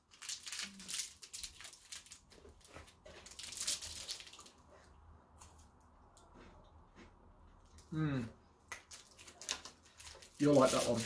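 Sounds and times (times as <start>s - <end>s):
plastic wrapper tearing and crinkling: 0.0s - 2.3s, 3.2s - 4.6s, 8.8s - 11.0s.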